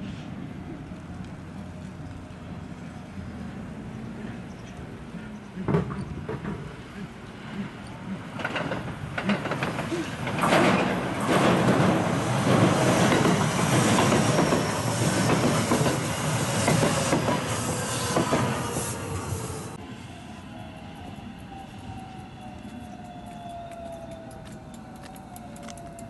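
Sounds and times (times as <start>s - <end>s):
train wheels rumbling and clacking: 4.1s - 19.8s.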